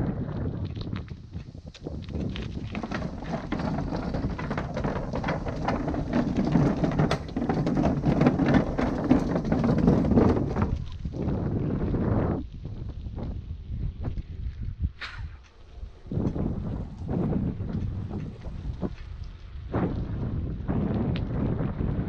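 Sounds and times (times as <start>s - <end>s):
wind buffeting microphone: 0.0s - 22.0s
bicycle knocks and rattles: 0.8s - 11.5s
low rumble: 1.9s - 22.0s.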